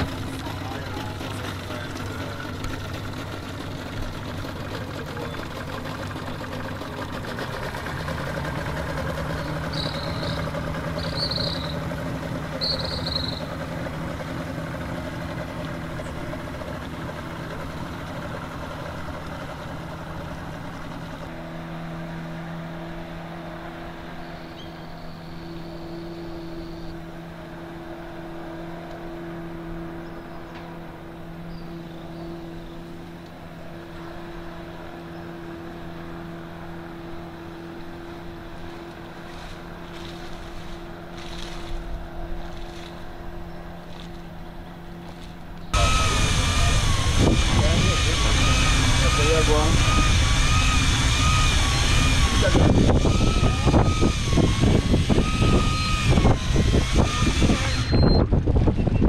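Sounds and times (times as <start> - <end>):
outboard motor running: 0.0 - 59.0
short high chirps: 9.7 - 11.8.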